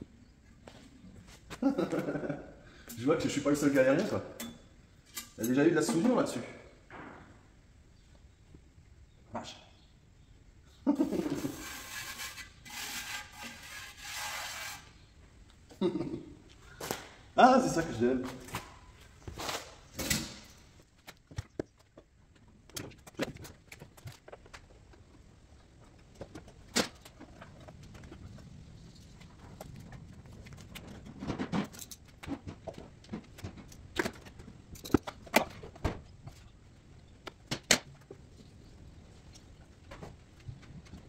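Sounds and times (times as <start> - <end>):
handling clicks and knocks: 29.8 - 36.1.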